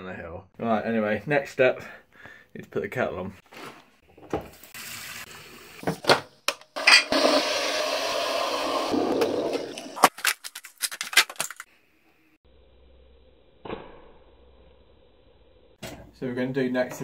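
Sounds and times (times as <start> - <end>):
water running: 4.1 - 6.2.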